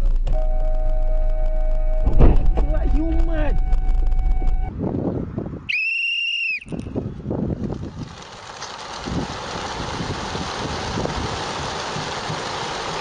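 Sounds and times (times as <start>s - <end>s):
whistle high note: 5.7s - 6.8s
flock of birds flapping: 7.5s - 13.0s.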